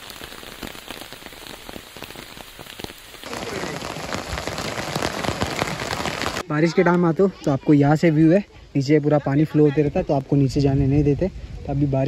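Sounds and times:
heavy rain falling: 0.0s - 6.5s
rainwater streaming off roof: 0.0s - 6.5s.

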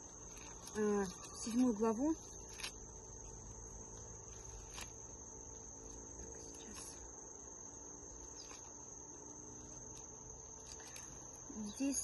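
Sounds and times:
pages turning: 0.0s - 2.8s, 4.3s - 5.0s, 8.3s - 8.8s
high insect trill: 0.0s - 12.0s.

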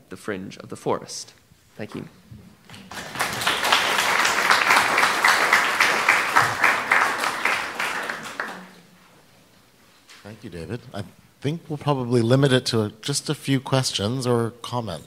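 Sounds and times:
audience applauding: 2.7s - 8.9s.

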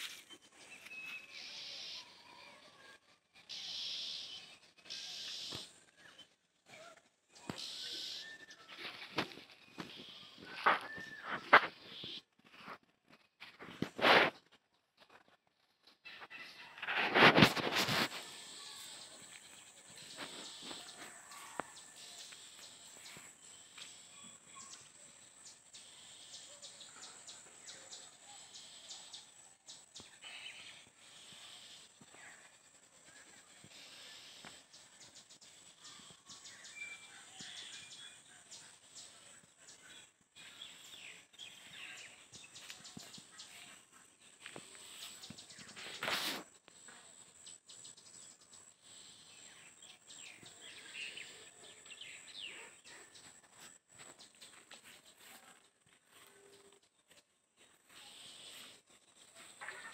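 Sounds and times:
bird chirps: 0.0s - 12.3s
loud rustle: 16.8s - 19.0s.

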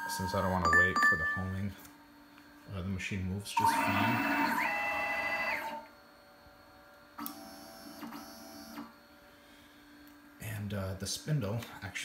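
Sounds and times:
stepper motors whining: 3.6s - 5.9s.

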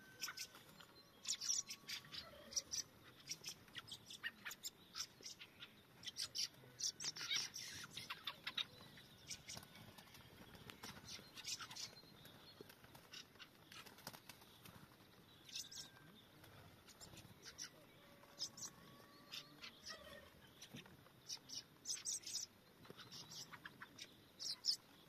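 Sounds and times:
thrushes calling: 0.0s - 9.7s, 16.8s - 25.0s.

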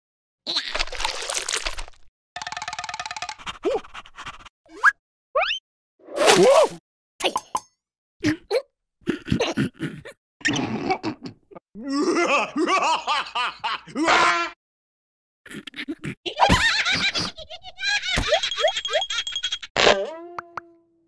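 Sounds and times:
cartoon characters laughing: 12.0s - 14.6s, 15.9s - 20.0s.

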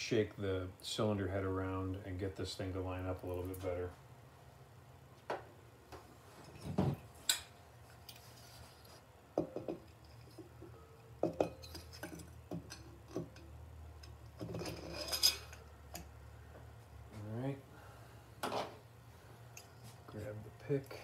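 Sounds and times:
metal clinks and knocks: 9.4s - 16.1s
metal scraping rub: 14.4s - 15.7s.

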